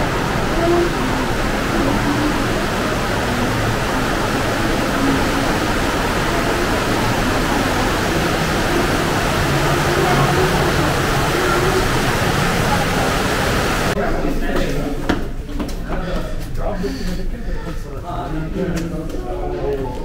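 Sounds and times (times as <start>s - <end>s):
water rushing through a cave: 0.0s - 14.0s.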